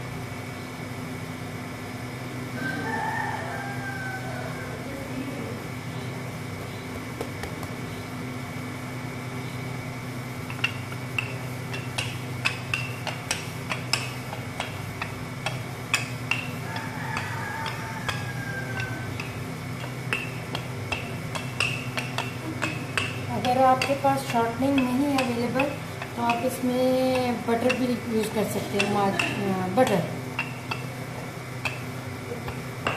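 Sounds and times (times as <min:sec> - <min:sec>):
steady low hum: 0:00.0 - 0:32.9
hands working dough on marble: 0:10.4 - 0:32.9.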